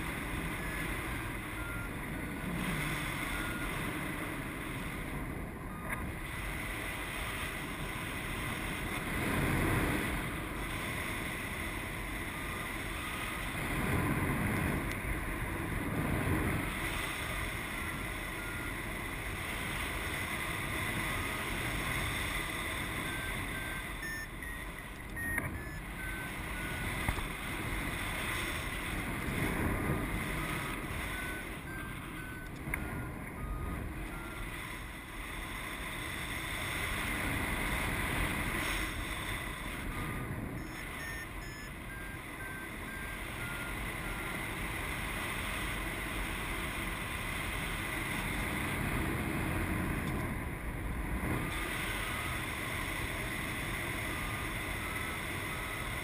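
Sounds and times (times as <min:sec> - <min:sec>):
wind rushing over microphone: 0:00.0 - 0:23.6, 0:25.5 - 0:35.1, 0:46.8 - 0:56.0
variometer short beeps: 0:00.2 - 0:04.5, 0:05.6 - 0:06.7, 0:12.0 - 0:13.8, 0:16.4 - 0:19.4, 0:20.0 - 0:35.6, 0:38.4 - 0:44.7, 0:51.3 - 0:52.6, 0:53.4 - 0:56.0.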